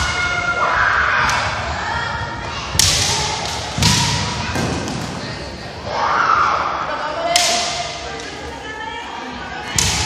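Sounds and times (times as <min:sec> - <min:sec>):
bamboo sword strikes: 0:02.8 - 0:04.2.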